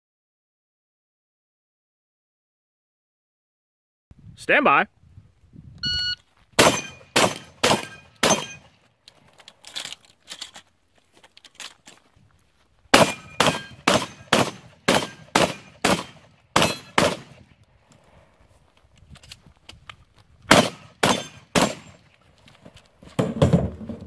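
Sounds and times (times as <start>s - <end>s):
pistol shots: 6.6s - 8.7s, 12.9s - 17.4s, 20.5s - 22.0s.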